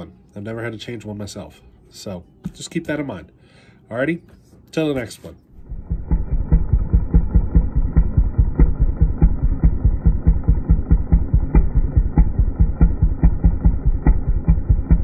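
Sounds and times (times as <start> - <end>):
engine idling with rapid thumping: 5.6 - 15.0.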